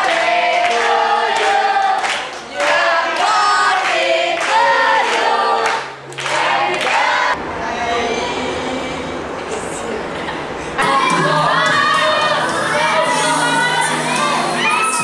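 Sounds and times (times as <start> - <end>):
hands clapping: 0.0 - 7.0
group singing in unison: 0.0 - 7.4, 10.8 - 15.0.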